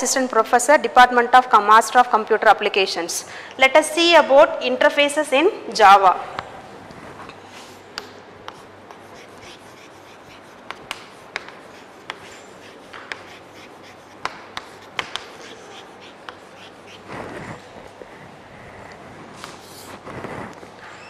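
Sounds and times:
chalk writing on chalkboard: 0:07.6 - 0:20.5.

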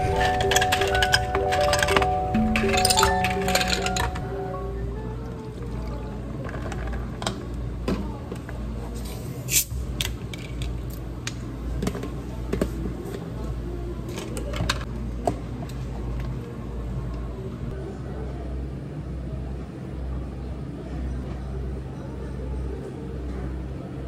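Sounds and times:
cups and utensils clinking: 0:00.0 - 0:04.4
low machine hum: 0:00.0 - 0:24.0.

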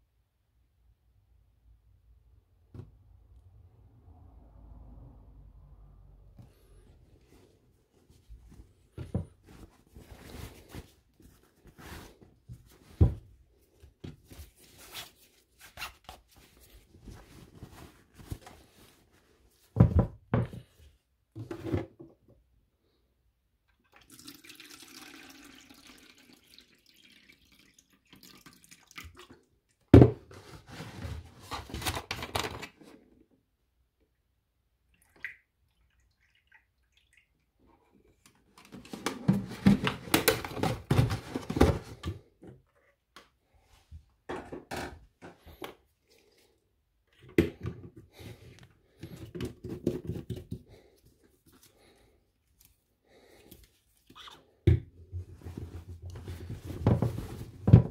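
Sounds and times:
liquid pouring through funnel: 0:23.7 - 0:29.5.

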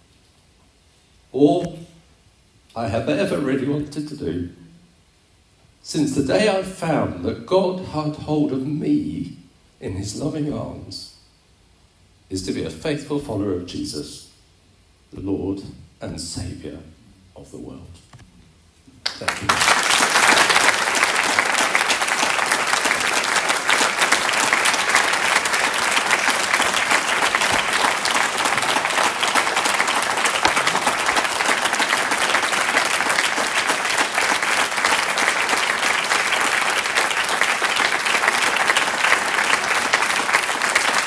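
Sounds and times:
audience applauding: 0:19.0 - 0:41.0.

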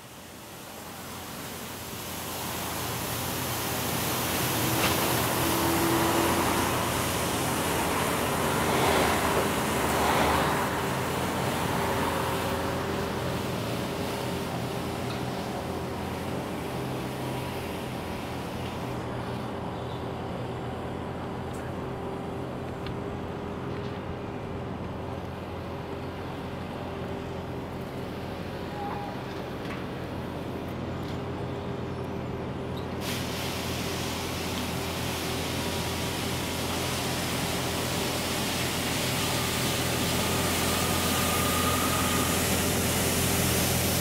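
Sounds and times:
high hiss: 0:33.0 - 0:44.0.

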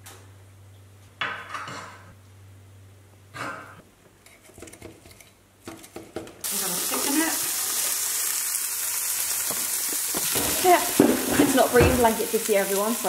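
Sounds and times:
sausages sizzling in a pan: 0:06.4 - 0:13.0.

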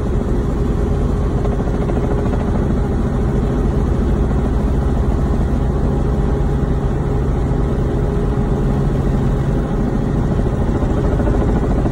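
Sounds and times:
helicopter engine and rotor drone: 0:00.0 - 0:11.9.

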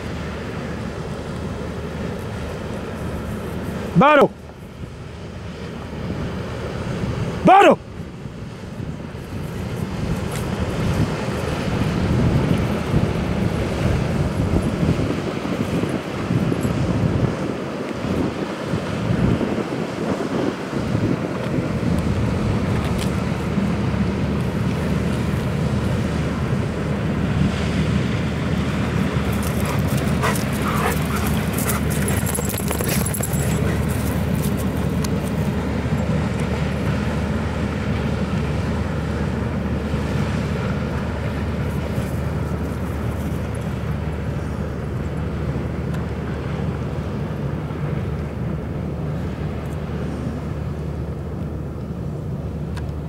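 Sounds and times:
ship diesel engine droning: 0:21.6 - 0:53.0.

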